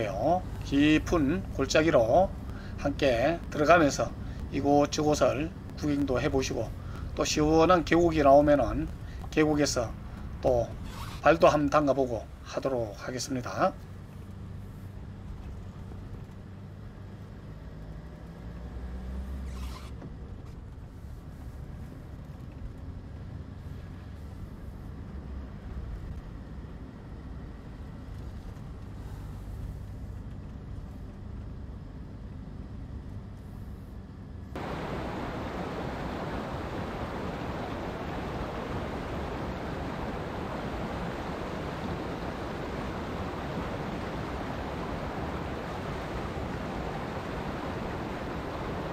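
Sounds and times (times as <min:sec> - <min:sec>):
car driving on asphalt: 0:00.0 - 0:48.9
short higher rustle: 0:10.8 - 0:11.4
stream rushing over rocks: 0:34.6 - 0:48.9.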